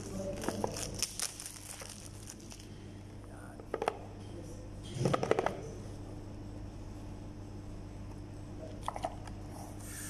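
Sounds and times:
plastic wrap crinkling: 0:00.0 - 0:02.8.

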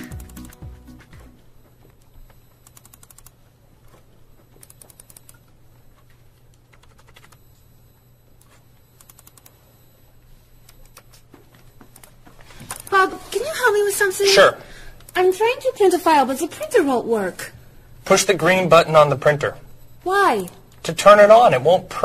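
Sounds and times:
laptop keyboard typing: 0:00.0 - 0:03.4, 0:04.5 - 0:05.6, 0:06.4 - 0:07.4, 0:08.4 - 0:09.6.

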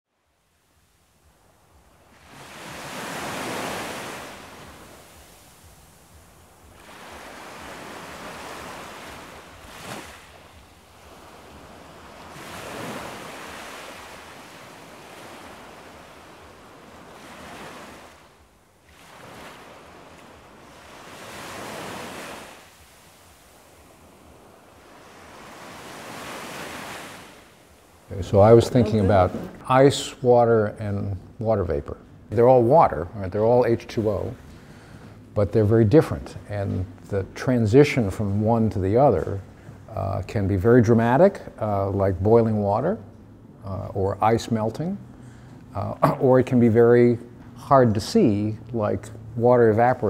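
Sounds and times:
ocean waves washing in: 0:00.2 - 0:30.4.

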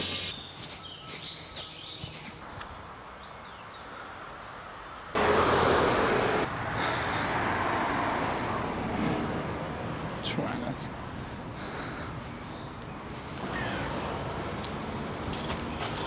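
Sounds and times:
small birds chirping: 0:00.0 - 0:05.1
road traffic rushing: 0:03.9 - 0:16.0.

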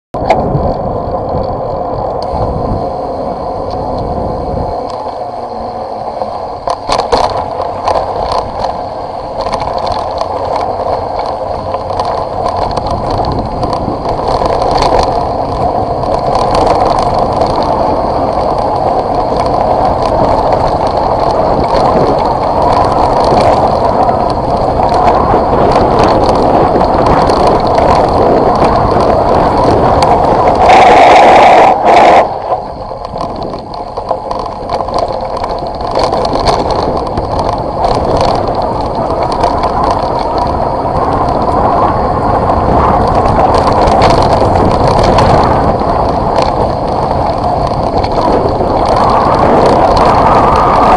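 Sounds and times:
tyres on road and gravel: 0:00.2 - 0:50.9
wind noise: 0:00.2 - 0:50.9.

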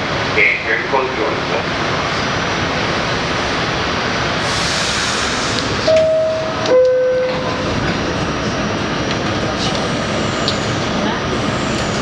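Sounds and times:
subway car equipment noise: 0:00.0 - 0:12.0
air hiss: 0:04.4 - 0:05.8.

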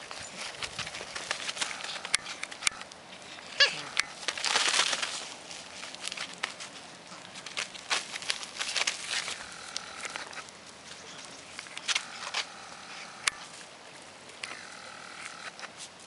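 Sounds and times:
dog paws scrabbling on mat and gravel: 0:00.0 - 0:12.5.

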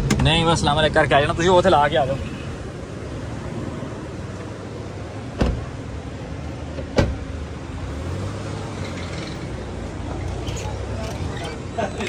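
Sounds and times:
car doors slamming: 0:05.2 - 0:05.9, 0:06.7 - 0:07.3.

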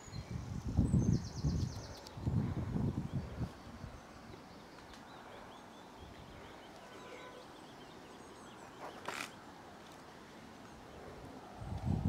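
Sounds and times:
small birds chirping: 0:00.0 - 0:11.8.

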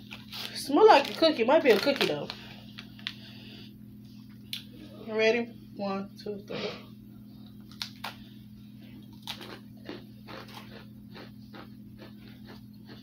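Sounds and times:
steady low hum: 0:00.0 - 0:13.0
biscuits crunching: 0:07.5 - 0:13.0.

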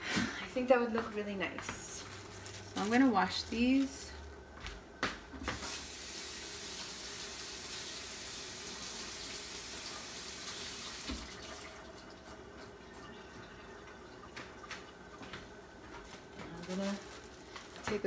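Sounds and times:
sink tap running: 0:05.4 - 0:15.0.

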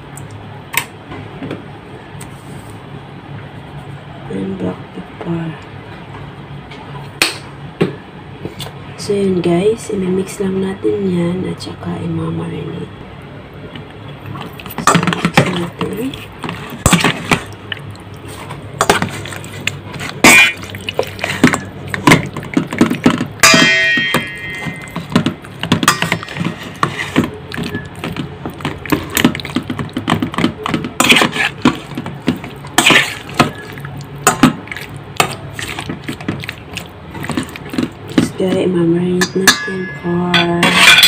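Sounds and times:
metal spoon scraping steel bowl: 0:39.3 - 0:41.0.

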